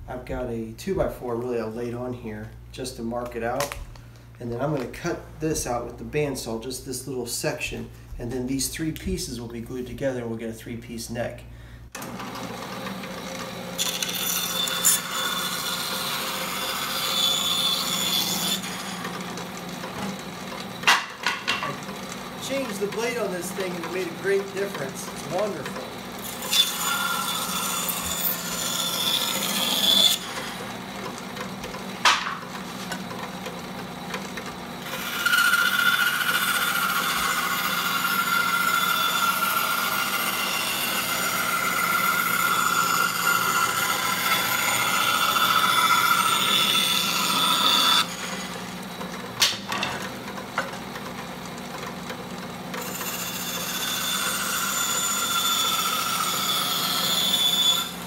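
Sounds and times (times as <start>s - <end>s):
bandsaw motor humming: 11.9s - 58.0s
bandsaw cutting wood: 12.0s - 51.0s, 52.6s - 58.0s.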